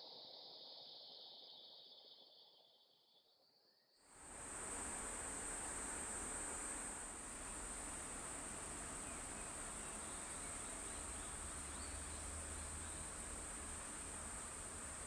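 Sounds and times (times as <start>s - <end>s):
high-pitched insect drone: 4.2s - 15.0s.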